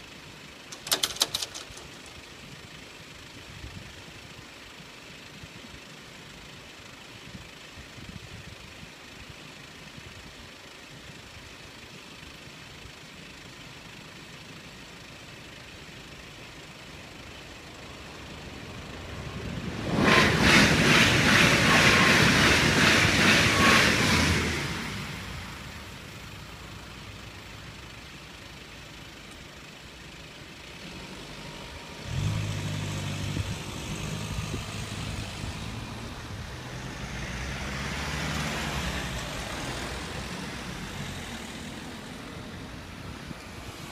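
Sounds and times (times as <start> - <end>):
train wheel clicks: 0.7 - 2.2
car engine pulling away: 16.1 - 43.9
train passing at speed: 18.1 - 26.0.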